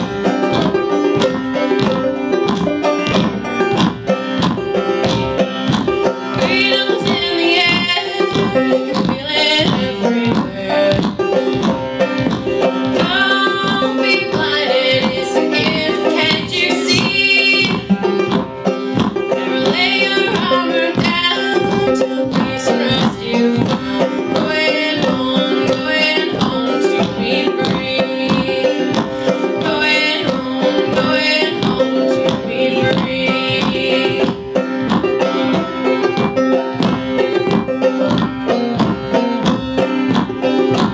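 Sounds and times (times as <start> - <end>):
bluegrass string band playing: 0.0 - 40.9.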